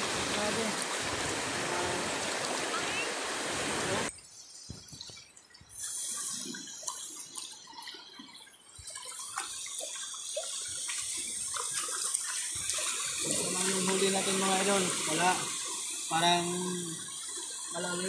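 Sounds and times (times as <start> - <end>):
surf rushing: 0.0 - 4.1
water splashing around wading legs: 4.7 - 15.9.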